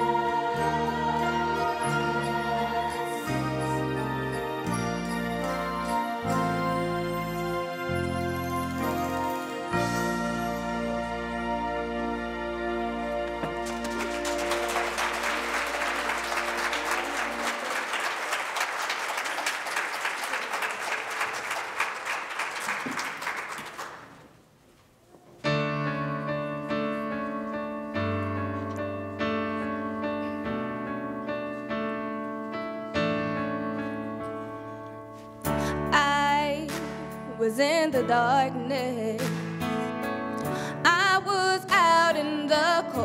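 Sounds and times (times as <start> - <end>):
slow piano chords: 0.0 - 18.0, 25.4 - 43.0
audience applauding: 13.3 - 24.3.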